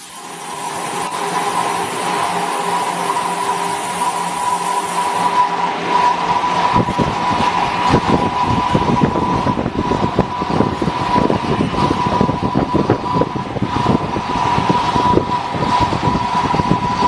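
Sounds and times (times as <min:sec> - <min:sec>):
high machine tone: 0:00.0 - 0:17.0.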